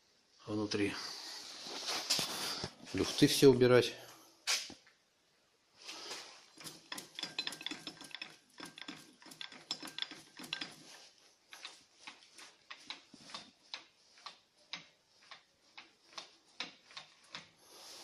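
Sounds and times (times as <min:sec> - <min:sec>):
lathe handwheel gears clicking: 0:06.5 - 0:17.6.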